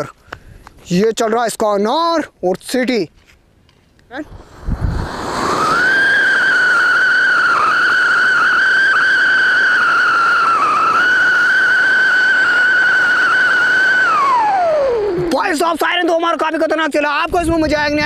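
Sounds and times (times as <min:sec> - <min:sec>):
spark fountain hissing: 0:04.1 - 0:15.7
firecracker high whistle: 0:04.2 - 0:15.5.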